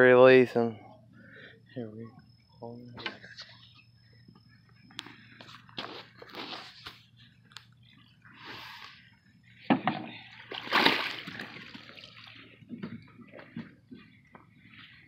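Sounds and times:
water splashing and sloshing: 9.7 - 13.7.

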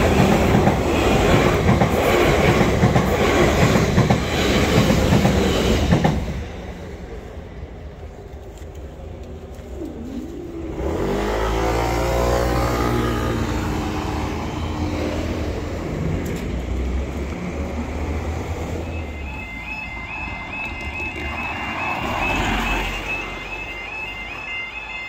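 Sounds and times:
road traffic: 0.0 - 25.0
two-tone crossing warning alarm: 10.8 - 15.5, 18.2 - 25.0.

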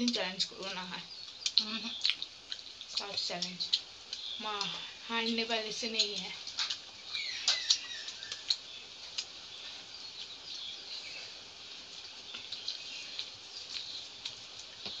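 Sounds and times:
fingers squishing food on steel plates: 0.0 - 15.0
faint high chirping: 0.1 - 15.0
wet mouth smacks and chewing: 1.2 - 4.7, 6.0 - 9.4, 12.3 - 15.0.

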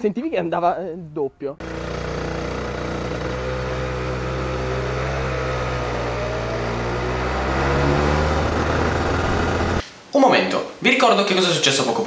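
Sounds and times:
kart engine running: 1.6 - 9.8.

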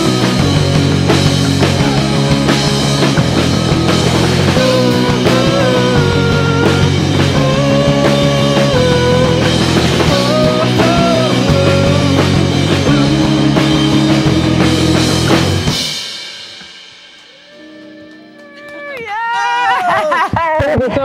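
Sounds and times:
bass guitar: 0.0 - 19.1
electric guitars: 0.0 - 19.8
drum kit: 0.0 - 20.9
male lead vocal: 4.2 - 15.0.

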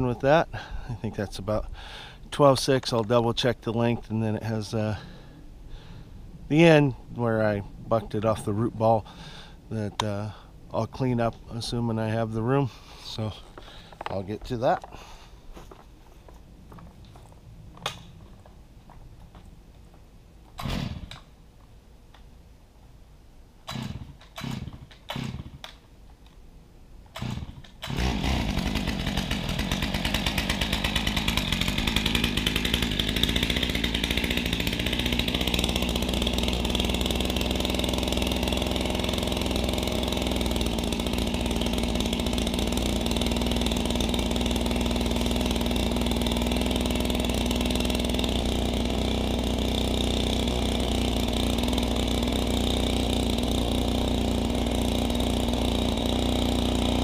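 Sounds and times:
engine idling: 27.2 - 57.0.

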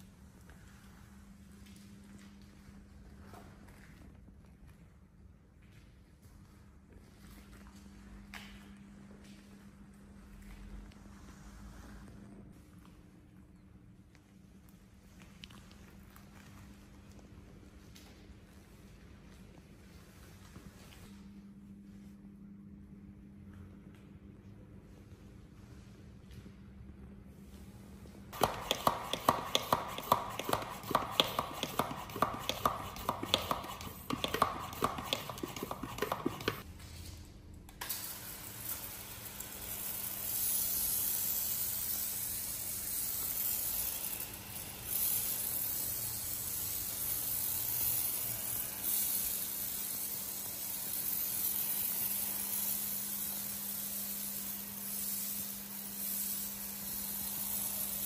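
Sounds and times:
sprayer hissing: 28.4 - 36.6
sprayer pump clicking strokes: 28.4 - 36.6.

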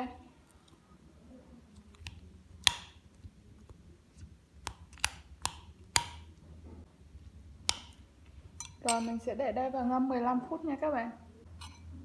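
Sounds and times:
spoon clinking against ceramic bowl: 8.6 - 9.2, 11.6 - 11.9.

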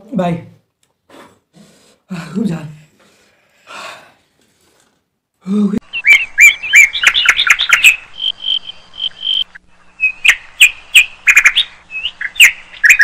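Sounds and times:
songbird chirping and whistling: 5.8 - 13.0.

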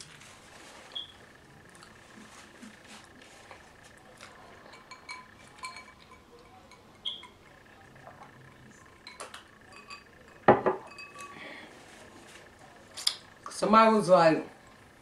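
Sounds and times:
clicks and clinks of eating: 3.9 - 11.4
glass set down on wooden table: 10.5 - 10.9.

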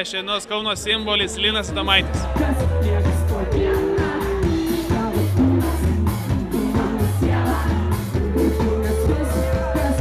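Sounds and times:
bass line: 0.8 - 10.0
drums: 0.8 - 10.0
person singing: 2.0 - 10.0.

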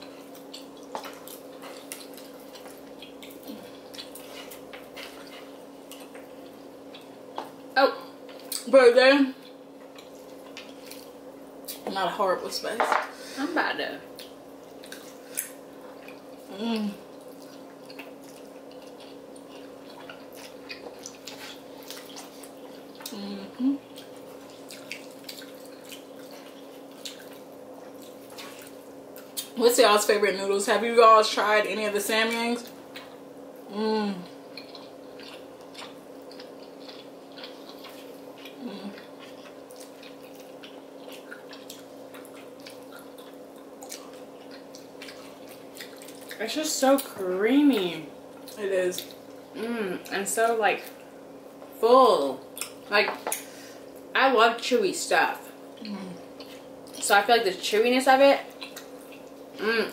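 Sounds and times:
wet chewing and slurping: 0.1 - 7.6, 17.1 - 23.2, 23.8 - 29.5, 34.2 - 46.4.

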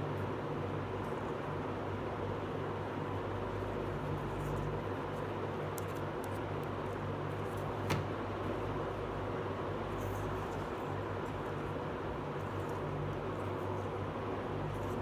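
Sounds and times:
low hum and hiss: 0.0 - 15.0.

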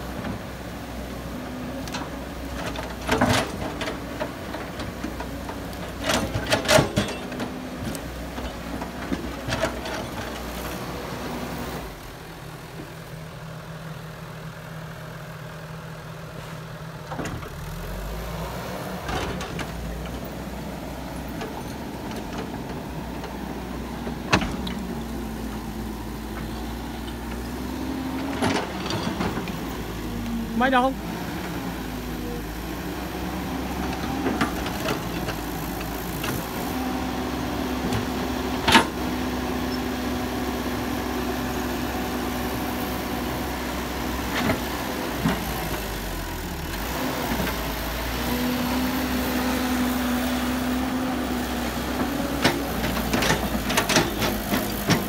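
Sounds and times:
excavator diesel engine running: 0.0 - 55.0.

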